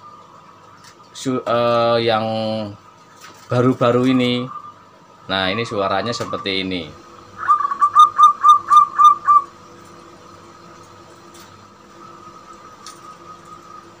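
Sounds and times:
dove cooing: 6.0 - 9.6, 11.8 - 14.0.

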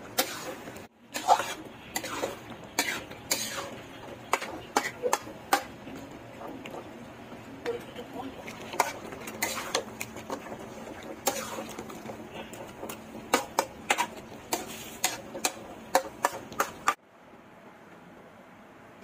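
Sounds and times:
metal spatula scraping metal pan: 0.2 - 5.8, 8.6 - 17.0.

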